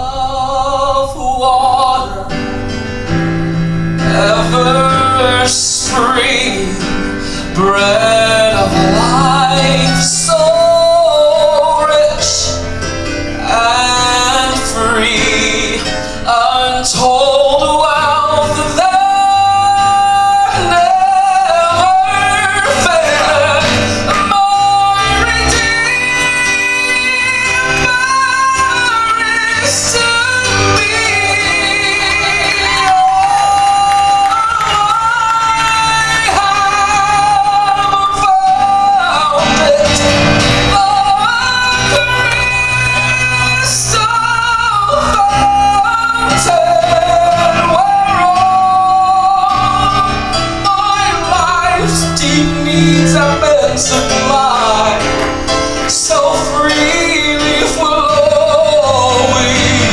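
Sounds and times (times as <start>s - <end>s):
piano accompaniment: 0.0s - 59.9s
male quartet singing in harmony: 4.0s - 12.8s, 13.4s - 59.9s.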